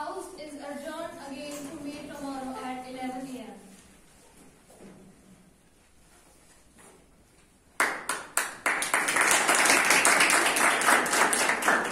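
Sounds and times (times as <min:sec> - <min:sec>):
group of people clapping: 0:07.7 - 0:11.9.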